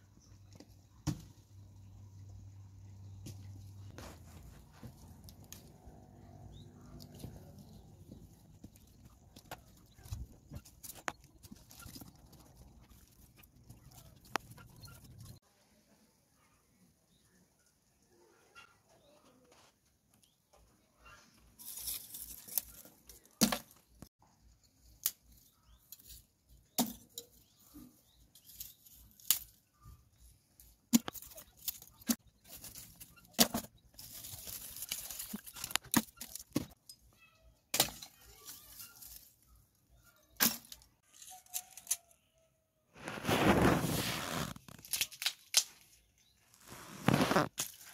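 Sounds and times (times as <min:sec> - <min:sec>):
scraping and rustling: 0:03.4 - 0:06.2, 0:21.0 - 0:24.0, 0:31.0 - 0:36.8, 0:42.9 - 0:45.1, 0:46.5 - 0:47.9.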